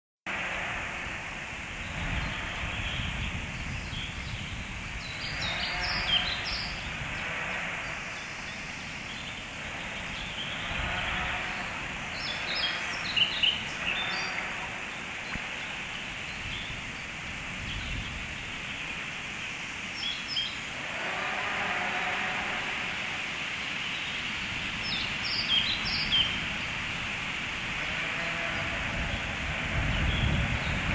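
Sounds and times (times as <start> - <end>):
background hiss: 0.3 - 30.9
small birds chirping: 1.8 - 22.2.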